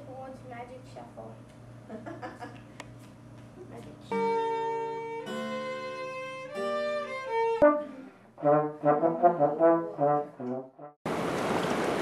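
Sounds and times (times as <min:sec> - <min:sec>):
violin playing long notes: 0:04.2 - 0:08.1.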